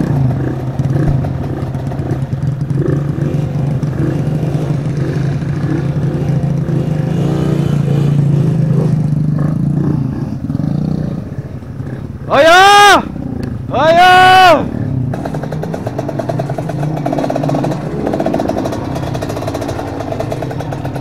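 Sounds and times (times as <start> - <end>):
motorcycle engines revving: 0.0 - 21.0.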